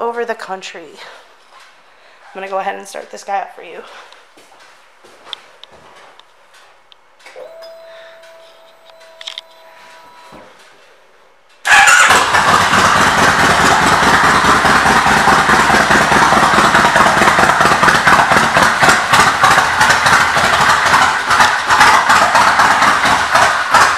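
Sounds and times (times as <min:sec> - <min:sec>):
motorcycle engine starting and idling: 0:11.6 - 0:23.9.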